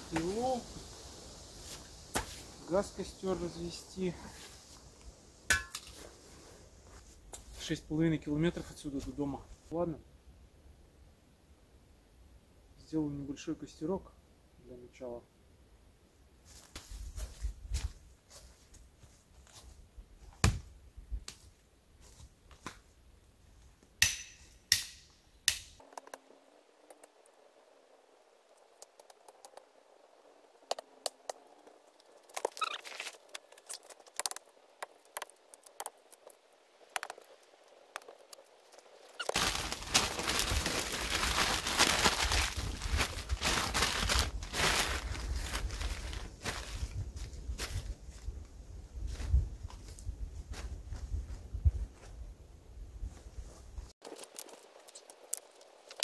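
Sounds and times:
twigs snapping: 24.0s - 26.2s, 30.7s - 46.1s, 54.0s - 56.0s
paper bag rustling and crinkling: 39.2s - 47.0s
footsteps through dry leaves: 39.2s - 48.3s.

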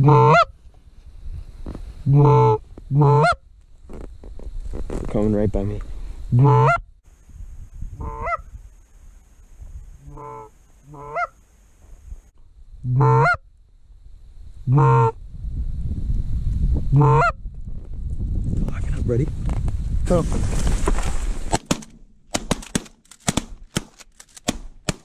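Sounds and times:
goose honking: 0.0s - 0.5s, 2.1s - 3.4s, 6.4s - 6.8s, 8.0s - 8.4s, 10.1s - 11.4s, 12.9s - 13.4s, 14.7s - 15.2s, 17.0s - 17.4s.

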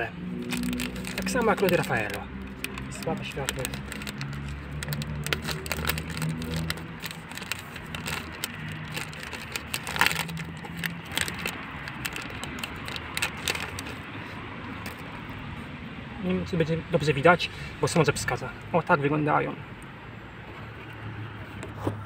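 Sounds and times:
plastic wrapper crinkling and tearing: 0.0s - 14.1s.

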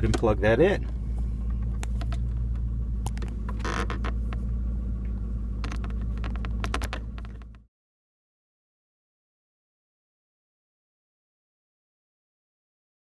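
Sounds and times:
car engine hum inside cabin: 0.0s - 7.7s.

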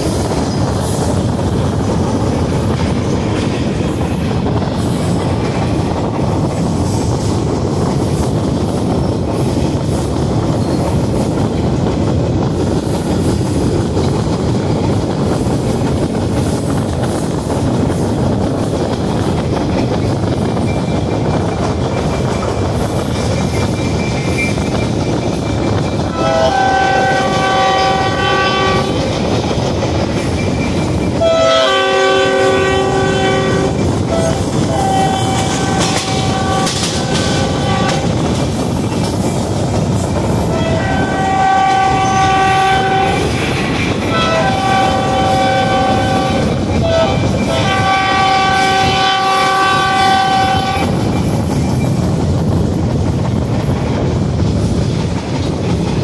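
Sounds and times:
train wheels rumbling and clacking: 0.0s - 56.0s
locomotive air horn: 26.1s - 29.0s, 31.2s - 38.2s, 40.5s - 43.3s, 44.1s - 50.9s.

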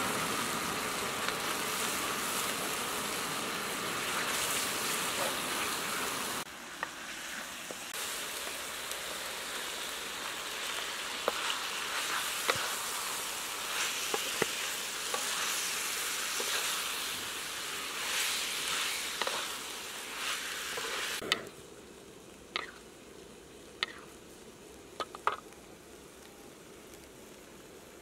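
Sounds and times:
food sizzling in a wok: 0.0s - 28.0s
wooden spatula scraping: 10.6s - 17.3s, 17.9s - 21.2s.

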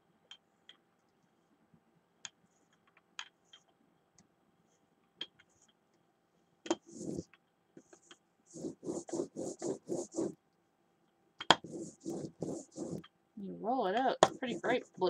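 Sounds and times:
rubber brayer rasping over paint: 6.8s - 7.3s, 8.0s - 10.4s, 11.5s - 13.1s, 14.2s - 15.0s
clicks and taps of art supplies: 11.4s - 11.6s.

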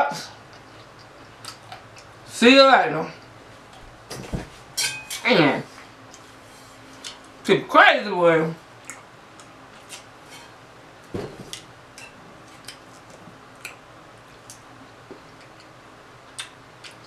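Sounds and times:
chewing: 0.5s - 2.1s, 12.5s - 17.0s
soft thump: 11.1s - 11.5s.

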